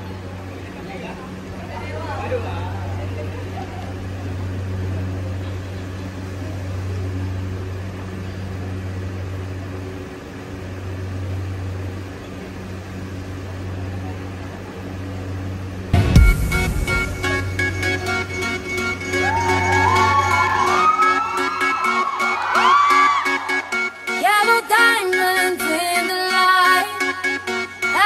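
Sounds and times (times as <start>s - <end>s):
low hum with buzzing overtone: 0.0s - 28.0s
loud bass hit: 16.0s - 20.0s
dance music: 16.0s - 28.0s.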